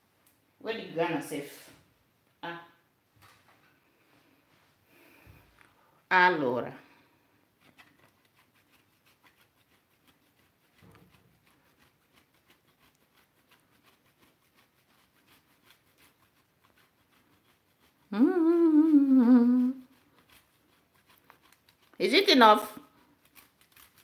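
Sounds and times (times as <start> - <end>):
cheese scraping on a grater: 7.6 - 24.0
woman humming: 18.1 - 19.9.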